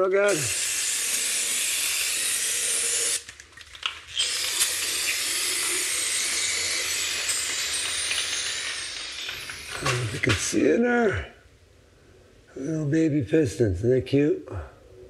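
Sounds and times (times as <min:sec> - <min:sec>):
aerosol can spraying: 0:00.3 - 0:03.3, 0:04.2 - 0:10.5.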